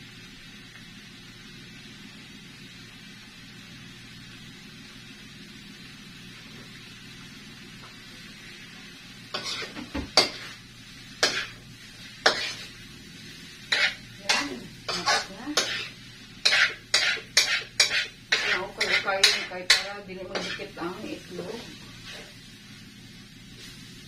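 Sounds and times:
food sizzling: 0.0 - 24.0
ladle scraping in a wok: 8.4 - 22.9.

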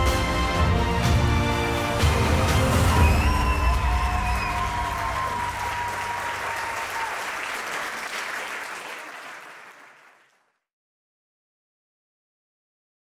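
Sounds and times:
crowd applauding: 2.1 - 10.5.

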